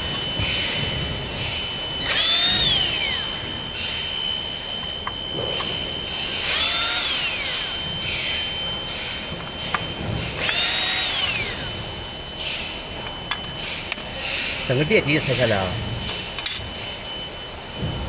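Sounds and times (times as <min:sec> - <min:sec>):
power drill spinning: 0:01.1 - 0:08.5, 0:09.6 - 0:11.9.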